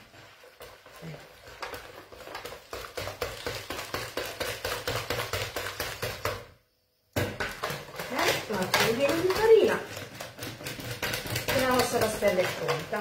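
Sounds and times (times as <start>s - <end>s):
batter beaten in plastic bowl: 0.0s - 13.0s.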